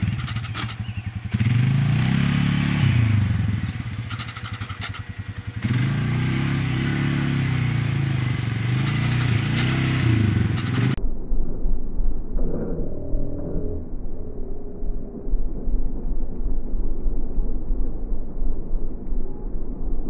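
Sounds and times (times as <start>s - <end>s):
quad bike engine revving: 0.0s - 11.0s.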